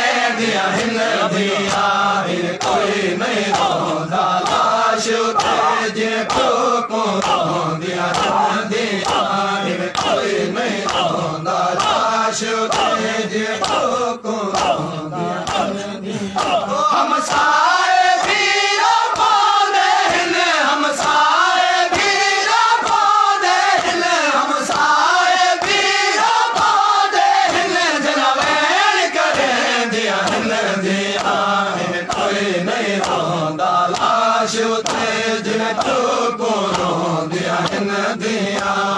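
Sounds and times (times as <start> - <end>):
crowd of men singing along: 0.0 - 38.9
lead reciter chanting into microphone: 0.0 - 38.9
open-hand chest slaps: 3.5 - 6.6, 7.2 - 11.2, 11.8 - 15.8, 16.4 - 17.6, 30.2 - 30.6, 31.2 - 31.4, 32.1 - 32.4, 33.0 - 33.3, 33.9 - 34.2, 34.8 - 35.2, 35.8 - 36.1, 36.7 - 37.0.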